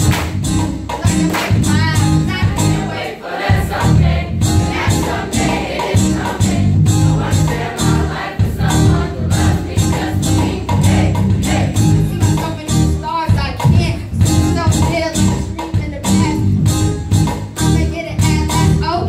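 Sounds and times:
bass-heavy music beat: 0:00.0 - 0:19.0
choir singing pop song: 0:02.2 - 0:12.4.

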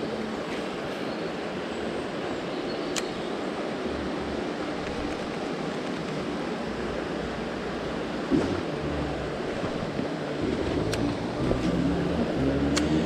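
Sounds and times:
sharp click: 0:02.9 - 0:03.1, 0:12.7 - 0:13.0
river rushing over stones: 0:03.2 - 0:13.0.

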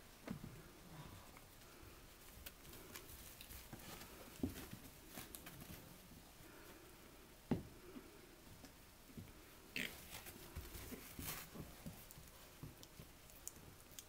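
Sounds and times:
soft taps of puppies scuffling: 0:01.6 - 0:06.2, 0:10.1 - 0:14.0.

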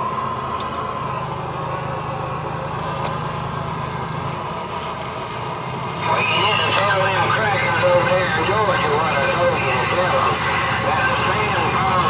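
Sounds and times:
road noise: 0:00.0 - 0:12.0
truck engine hum: 0:00.0 - 0:12.0.

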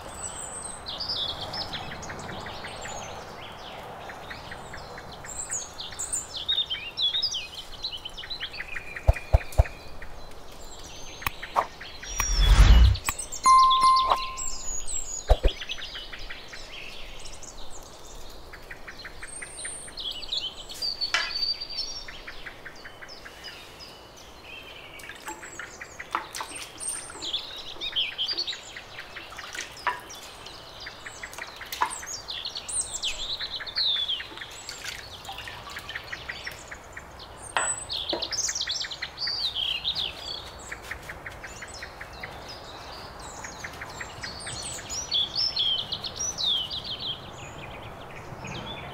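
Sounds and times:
birds chirping and trilling: 0:05.4 - 0:17.6.

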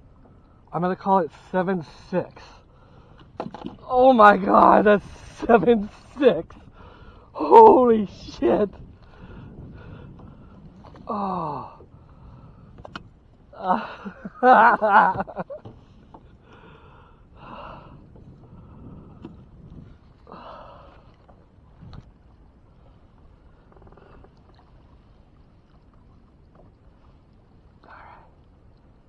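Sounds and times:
breathy vocal sounds: 0:11.0 - 0:12.3.

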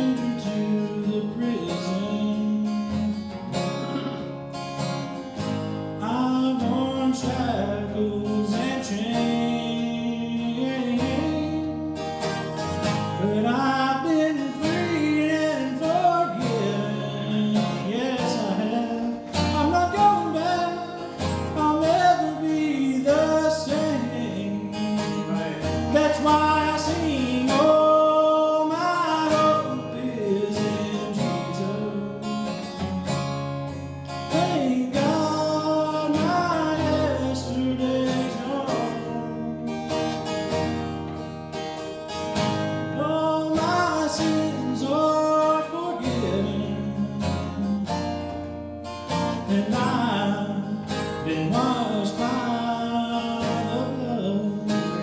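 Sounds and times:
man singing into a microphone: 0:00.0 - 0:04.3, 0:06.0 - 0:12.2, 0:13.0 - 0:32.7, 0:34.1 - 0:40.1, 0:42.7 - 0:48.2, 0:49.1 - 0:55.0
acoustic guitar strumming: 0:00.0 - 0:55.0.

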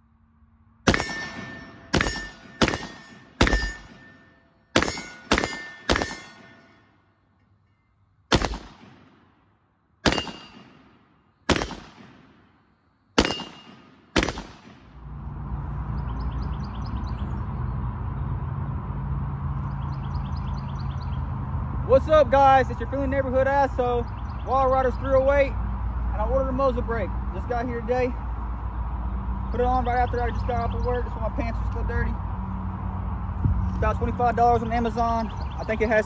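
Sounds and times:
rifle shots with echo: 0:00.9 - 0:06.7, 0:08.3 - 0:09.4, 0:10.0 - 0:12.6, 0:13.2 - 0:15.0.

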